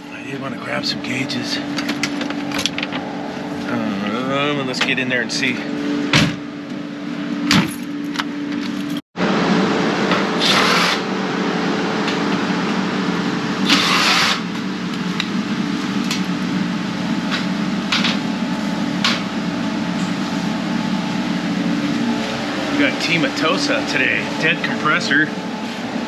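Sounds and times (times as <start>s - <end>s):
steady machine hum: 0.0s - 26.0s
cordless drill whirring: 10.4s - 11.0s, 13.6s - 14.4s.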